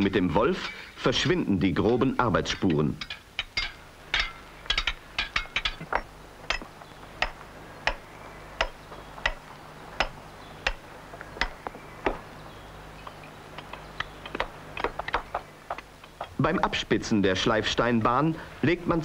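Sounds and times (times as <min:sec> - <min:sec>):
steady low hum: 0:00.0 - 0:19.0
tool striking stone: 0:01.8 - 0:12.3, 0:13.6 - 0:16.7.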